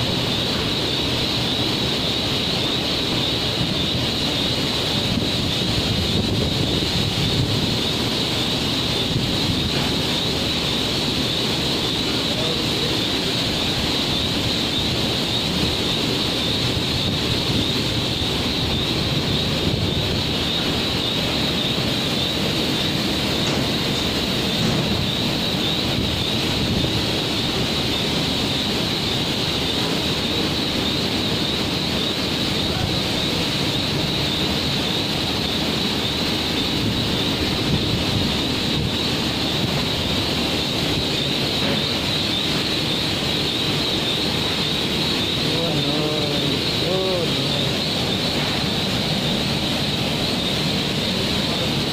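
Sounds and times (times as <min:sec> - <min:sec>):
factory machinery hiss and rumble: 0:00.0 - 0:51.9.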